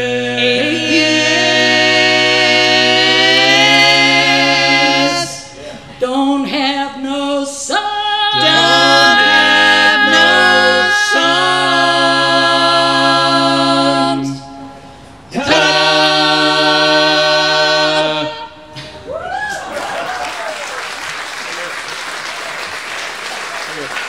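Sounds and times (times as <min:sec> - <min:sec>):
voices singing in close harmony: 0:00.0 - 0:19.0.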